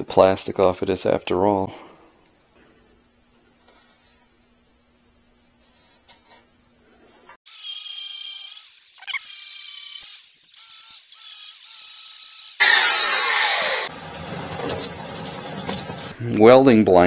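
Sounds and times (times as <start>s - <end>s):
angle grinder whining: 12.5s - 14.9s
harsh grinding burst: 12.5s - 15.2s.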